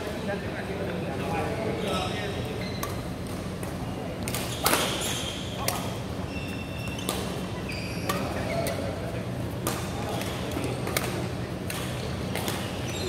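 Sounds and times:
shoes squeaking on court floor: 0:01.8 - 0:13.0
racket hitting shuttlecock: 0:02.8 - 0:05.0, 0:07.0 - 0:07.5, 0:09.6 - 0:12.9.

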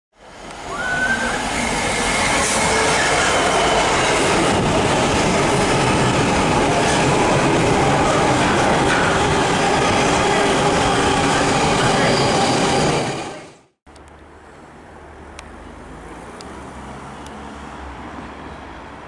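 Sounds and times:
freight train rumbling past: 0:00.2 - 0:13.7.

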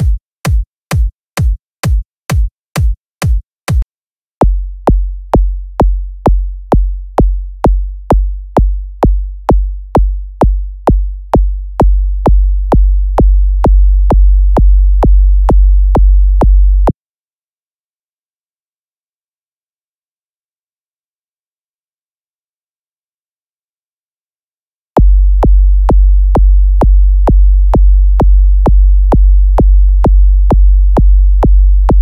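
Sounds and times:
clicky kick drum: 0:00.0 - 0:03.8, 0:04.4 - 0:16.9, 0:25.0 - 0:32.0
deep sub-bass kick drum: 0:04.4 - 0:17.0, 0:25.0 - 0:32.0.

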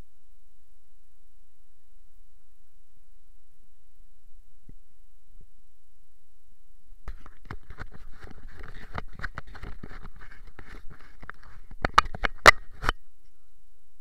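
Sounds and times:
camera handling rustling: 0:07.1 - 0:13.0.

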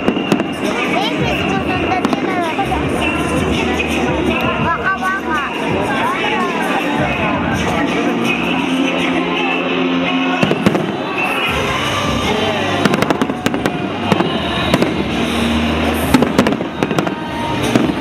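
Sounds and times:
fireworks bursting: 0:00.0 - 0:04.5, 0:10.3 - 0:18.0
pop song playing: 0:00.0 - 0:18.0.

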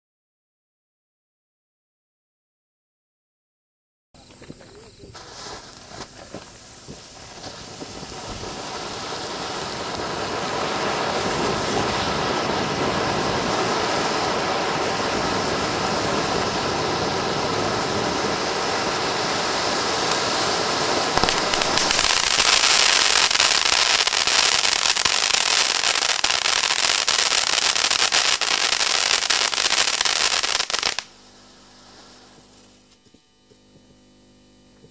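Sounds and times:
firework fountain hissing and crackling: 0:04.2 - 0:33.2.

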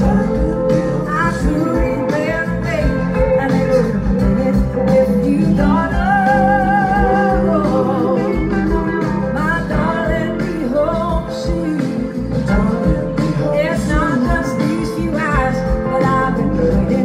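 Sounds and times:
bass guitar: 0:00.0 - 0:17.0
electric guitar: 0:00.0 - 0:17.0
woman singing with vibrato: 0:00.0 - 0:17.0.

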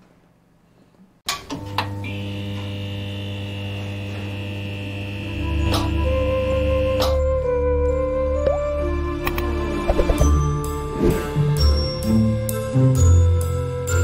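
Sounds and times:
neon sign electric hum: 0:01.3 - 0:07.2.

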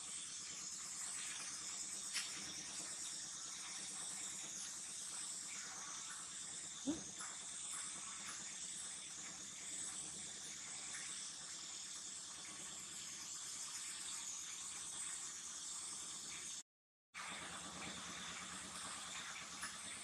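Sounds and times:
faint high-pitched outdoor hiss: 0:00.0 - 0:16.6.

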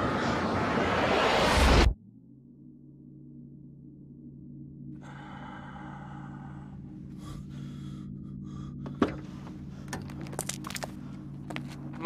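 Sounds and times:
low held drone: 0:00.0 - 0:12.0
man breathing heavily and gasping: 0:05.0 - 0:10.1.

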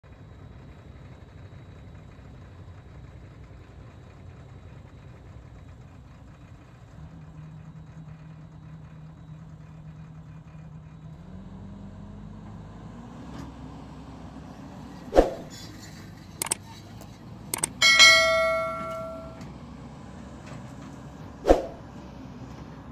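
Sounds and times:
diesel excavator engine idling: 0:00.1 - 0:22.9.

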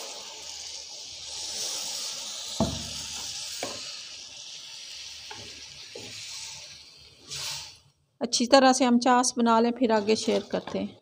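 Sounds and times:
water sizzling in hot pan: 0:00.0 - 0:08.0, 0:09.6 - 0:11.0
wooden spatula knocking on pan: 0:02.6 - 0:03.0.

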